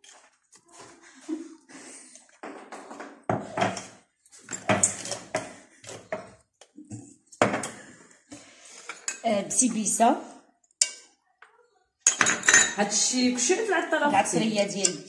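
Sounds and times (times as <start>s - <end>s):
kitchen containers clinking on countertop: 12.1s - 15.0s.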